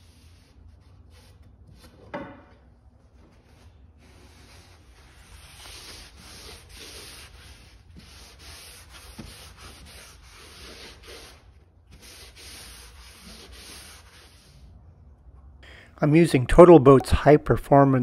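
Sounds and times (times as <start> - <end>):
cloth rubbing on wood: 3.2 - 14.6.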